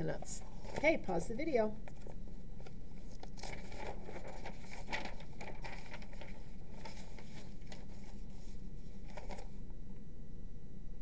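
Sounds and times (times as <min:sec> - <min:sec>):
low electrical hum: 0:00.0 - 0:11.0
faint rustles and clicks: 0:00.1 - 0:09.6.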